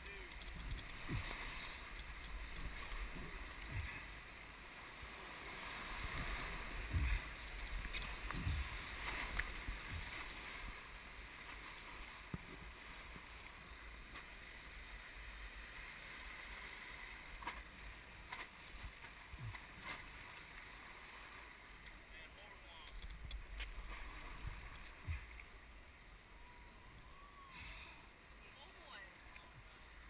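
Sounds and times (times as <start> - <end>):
water splashing against raft: 0.0 - 25.7.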